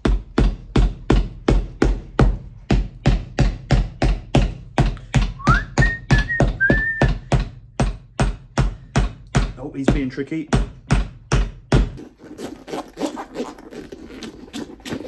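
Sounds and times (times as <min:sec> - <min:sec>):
background music with steady beat: 0:00.0 - 0:12.0
whistled melody: 0:05.4 - 0:07.2.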